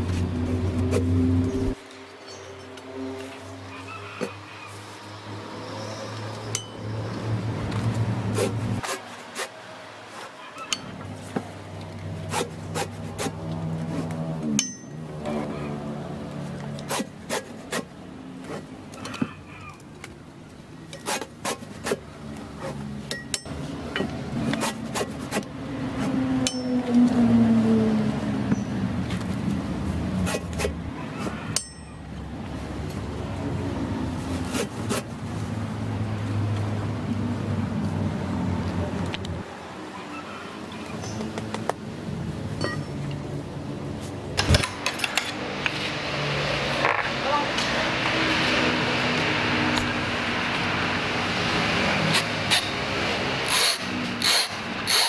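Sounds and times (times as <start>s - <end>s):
engine hum: 0.0s - 55.0s
tires and metal tools knocking: 14.4s - 15.2s, 23.0s - 27.0s, 31.5s - 32.2s, 42.6s - 43.2s.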